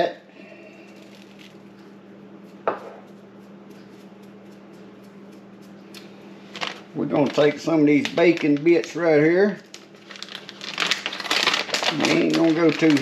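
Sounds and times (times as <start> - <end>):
low electrical hum: 0.0 - 13.0
bowl knocking on countertop: 2.6 - 3.1.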